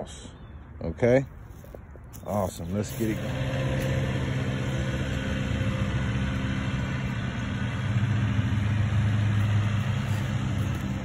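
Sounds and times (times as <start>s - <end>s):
tractor engine running: 1.7s - 11.0s.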